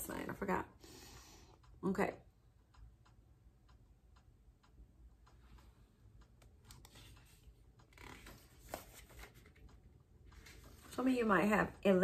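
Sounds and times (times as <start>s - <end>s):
soft rustle: 6.9s - 9.7s, 10.3s - 11.2s.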